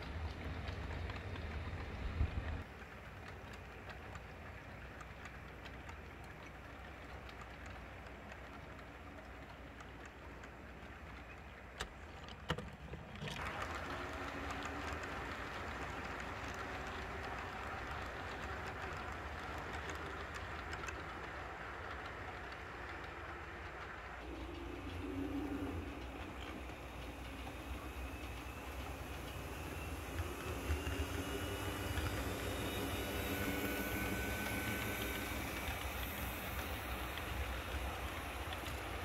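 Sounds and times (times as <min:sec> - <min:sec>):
model train cars rolling: 0:00.0 - 0:39.0.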